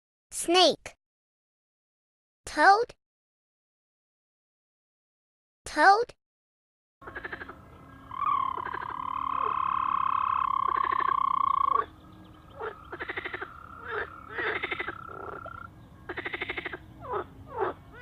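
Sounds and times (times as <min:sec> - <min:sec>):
chorus of pulsed croaks: 0:07.0 - 0:18.0
toad trilling: 0:07.0 - 0:18.0.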